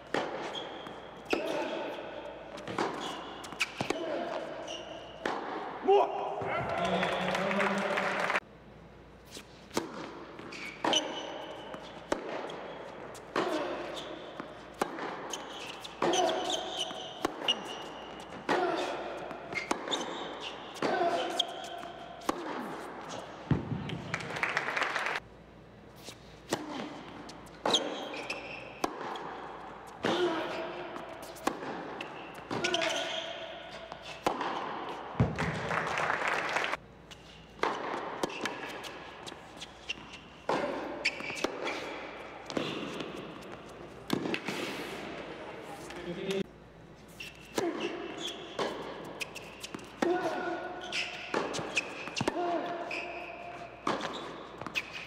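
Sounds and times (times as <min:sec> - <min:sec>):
racket striking tennis ball: 0:00.0 - 0:05.8, 0:09.4 - 0:24.0, 0:26.4 - 0:35.6, 0:37.5 - 0:45.2, 0:47.2 - 0:55.0
shoe squeaks on court: 0:00.1 - 0:02.0, 0:02.6 - 0:05.3, 0:10.4 - 0:18.9, 0:19.5 - 0:22.0, 0:26.0 - 0:29.5, 0:31.2 - 0:35.0, 0:38.2 - 0:43.8, 0:47.1 - 0:50.0, 0:50.8 - 0:55.0
crowd noise in large hall: 0:05.1 - 0:08.8
tennis ball thuds: 0:21.7 - 0:24.1, 0:34.2 - 0:35.7.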